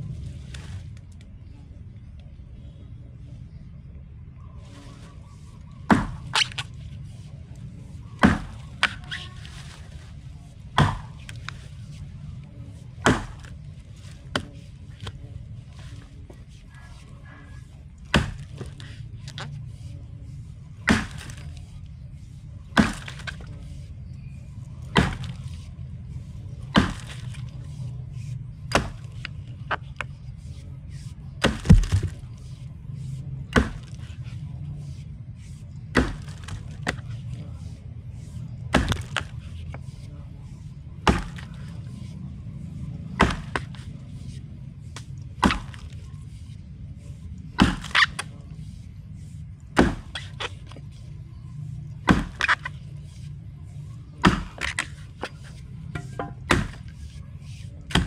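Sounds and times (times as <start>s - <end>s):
axe chopping wood: 5.8s - 6.7s, 8.2s - 9.2s, 10.7s - 11.5s, 13.0s - 13.6s, 14.2s - 15.2s, 18.0s - 19.5s, 20.8s - 21.6s, 22.7s - 23.6s, 24.9s - 32.4s, 33.4s - 34.2s, 35.8s - 37.2s, 38.7s - 40.0s, 41.0s - 41.9s, 43.1s - 44.3s, 44.9s - 46.3s, 47.5s - 48.3s, 49.7s - 50.9s, 52.0s - 53.3s, 54.2s - 57.2s.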